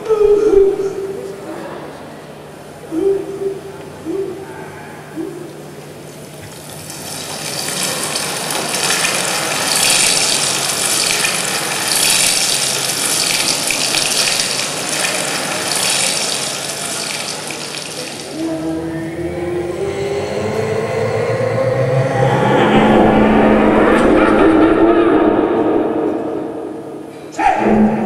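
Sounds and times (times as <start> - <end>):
water rushing and splashing: 7.1 - 18.4.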